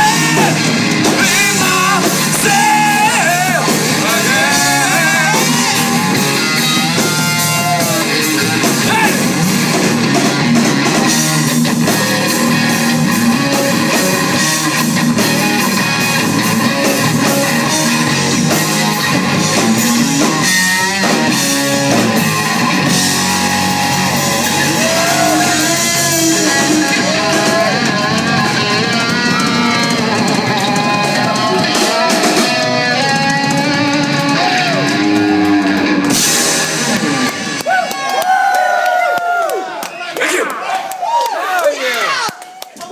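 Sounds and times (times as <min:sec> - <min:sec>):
rock band playing loudly: 0:00.0 - 0:39.1.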